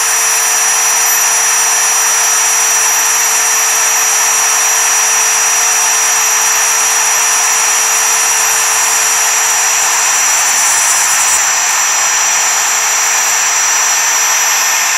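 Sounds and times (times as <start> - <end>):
milling spindle cutting metal: 0.0 - 14.9.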